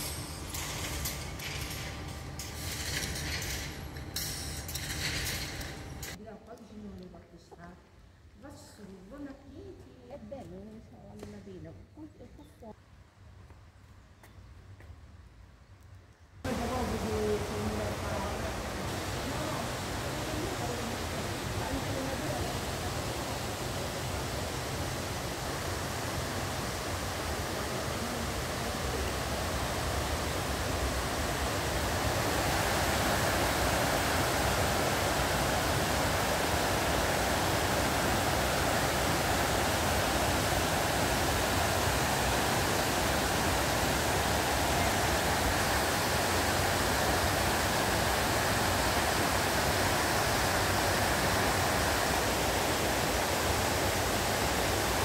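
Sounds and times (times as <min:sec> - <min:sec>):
waterfall rushing: 0:16.5 - 0:55.0.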